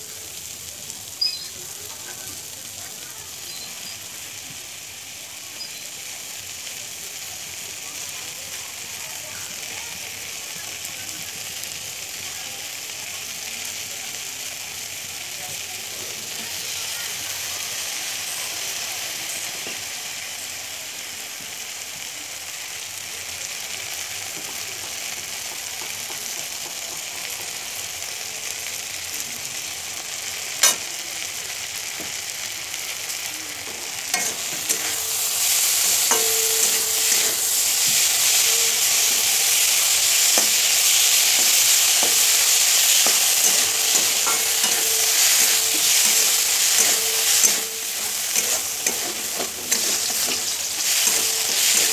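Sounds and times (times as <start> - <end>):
vegetables sizzling in hot oil: 0.0 - 51.9
metal spatula scraping pan: 34.2 - 39.6, 40.3 - 51.9.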